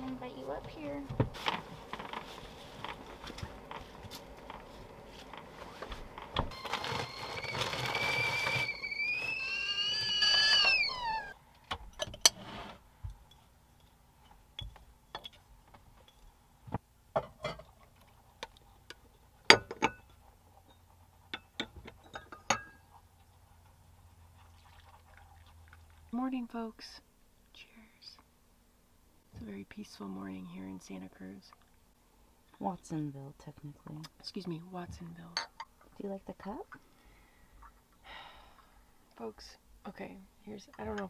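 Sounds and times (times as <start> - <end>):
stovetop kettle whistling: 6.5 - 11.4
cups clinking and knocking: 19.5 - 22.9.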